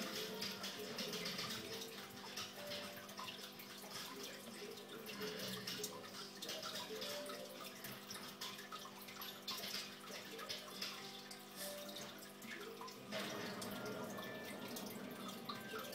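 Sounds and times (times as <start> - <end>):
water trickling and splashing: 0.0 - 15.9.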